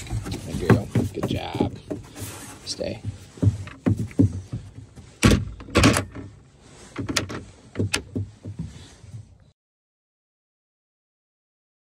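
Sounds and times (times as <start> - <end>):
plastic kennel door clacking: 5.2 - 6.3.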